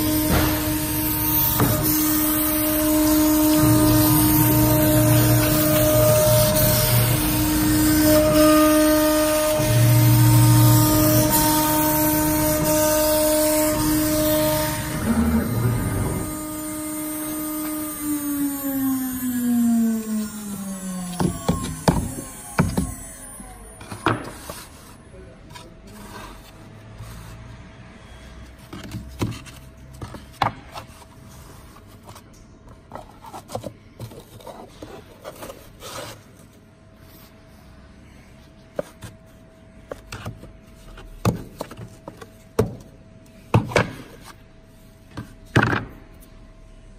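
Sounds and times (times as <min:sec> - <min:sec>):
hand scraper scraping: 0:00.0 - 0:23.2, 0:33.0 - 0:36.6
router spindle whining down: 0:00.0 - 0:24.1.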